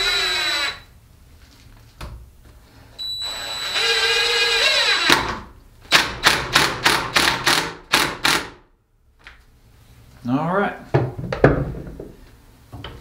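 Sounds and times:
cordless drill whining into wood: 0:00.0 - 0:00.9, 0:03.0 - 0:05.4.

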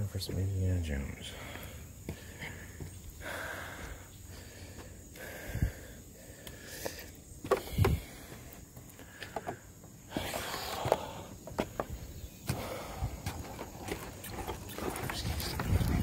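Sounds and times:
footsteps on wooden bridge: 0:02.0 - 0:04.0, 0:07.4 - 0:16.0.

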